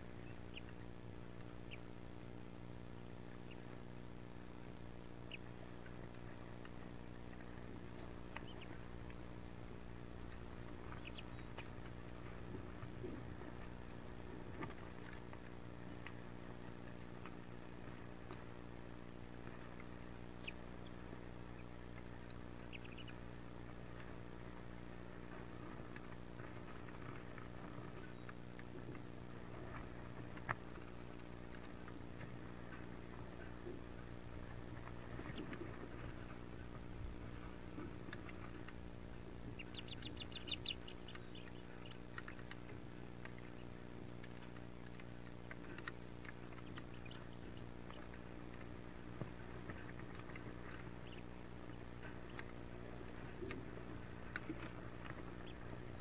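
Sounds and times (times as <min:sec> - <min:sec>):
ducklings peeping: 0:00.0 - 0:56.0
low electrical hum: 0:00.0 - 0:56.0
scratchy ticks in nest box: 0:24.1 - 0:56.0.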